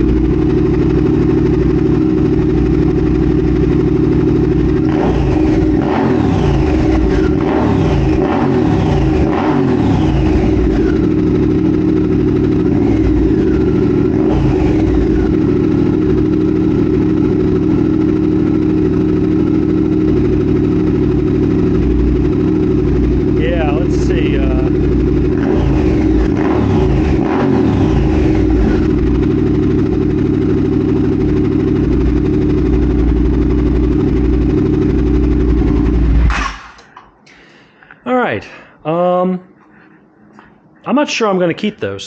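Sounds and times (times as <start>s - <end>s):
motorcycle throttle blips: 0.0s - 37.1s
loud motorcycle engine idling: 0.0s - 37.8s.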